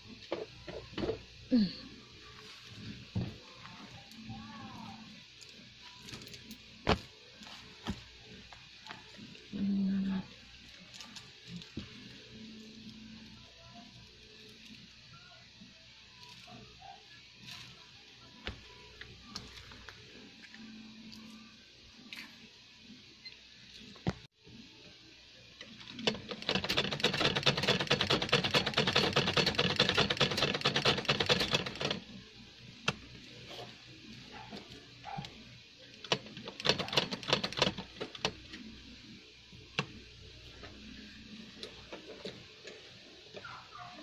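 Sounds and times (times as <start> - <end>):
sewing machine stitching: 26.0 - 32.0, 36.1 - 38.3.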